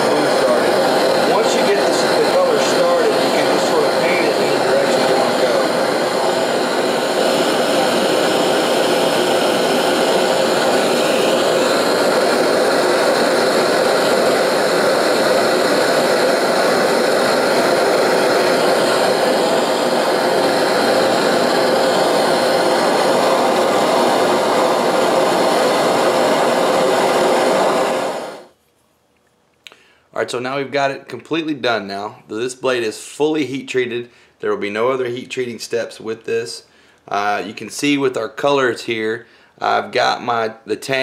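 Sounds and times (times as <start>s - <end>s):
gas torch burning: 0.0s - 28.6s.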